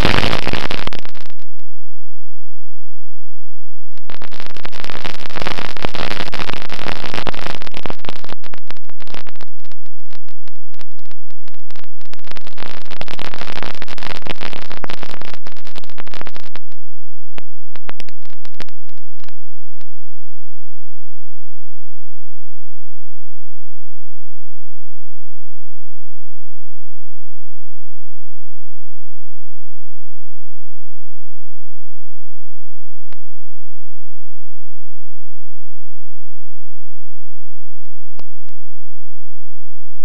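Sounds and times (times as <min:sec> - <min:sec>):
crackles: 0:00.0 - 0:01.8, 0:03.8 - 0:20.6, 0:37.6 - 0:39.3
distorted wind and motor noise: 0:00.0 - 0:01.8, 0:04.0 - 0:19.9.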